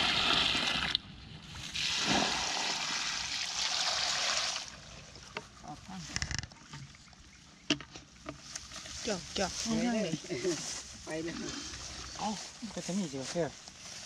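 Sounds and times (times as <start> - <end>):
water splashing and sloshing: 0.0 - 5.6.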